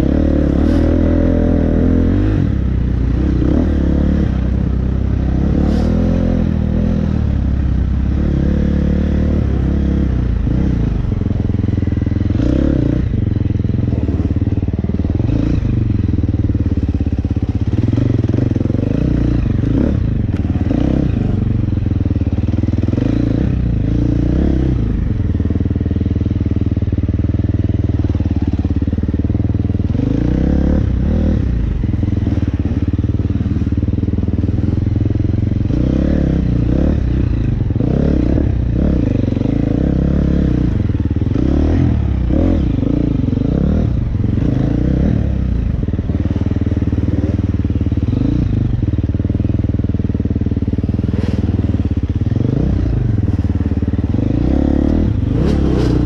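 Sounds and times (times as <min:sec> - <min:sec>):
dirt bike engine revving: 0:00.0 - 0:07.4, 0:16.9 - 0:21.5, 0:50.6 - 0:56.0.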